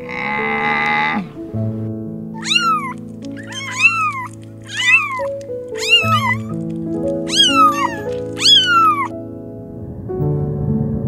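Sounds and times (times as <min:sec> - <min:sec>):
soft piano music: 0:00.0 - 0:11.0
kitten meowing: 0:02.4 - 0:09.1.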